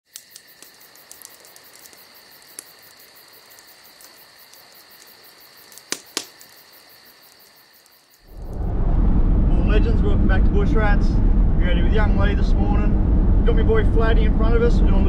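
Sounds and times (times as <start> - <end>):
insects chirping: 0.0 - 8.6
sharp clicks: 3.5 - 6.6.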